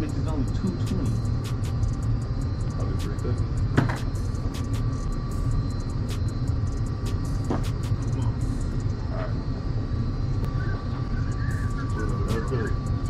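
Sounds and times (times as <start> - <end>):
faint hum: 0.0 - 13.0.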